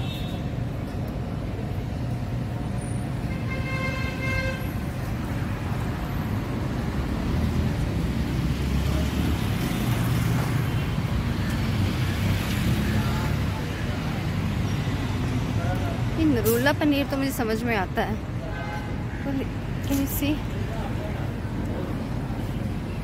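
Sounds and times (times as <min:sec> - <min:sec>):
low rumble of vehicle engines: 0:00.0 - 0:23.0
car horn: 0:03.3 - 0:04.8.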